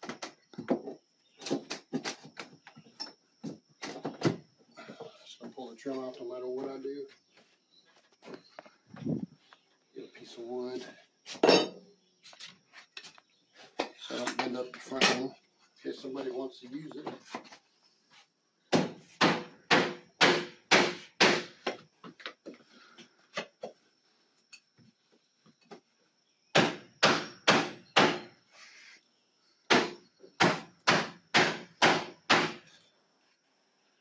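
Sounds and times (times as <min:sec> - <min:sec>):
hammer striking wood block: 0:18.7 - 0:21.5, 0:26.5 - 0:28.3, 0:29.7 - 0:32.6.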